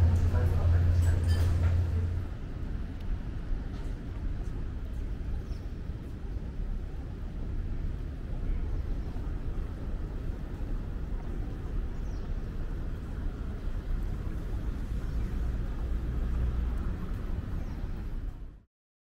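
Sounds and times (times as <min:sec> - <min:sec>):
city ambience low rumble: 0:00.0 - 0:18.7.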